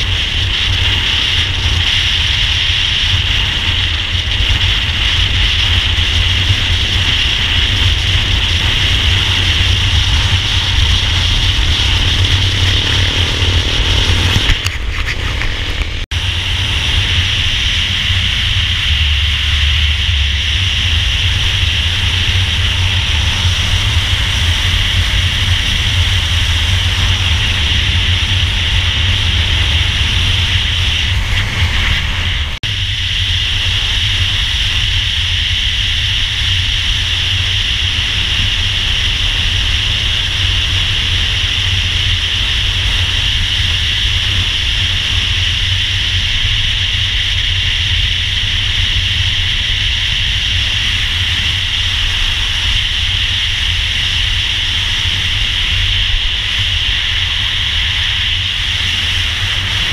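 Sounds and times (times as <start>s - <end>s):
motorcycle engine and road noise: 0.0s - 59.9s
rushing hiss: 16.0s - 59.9s.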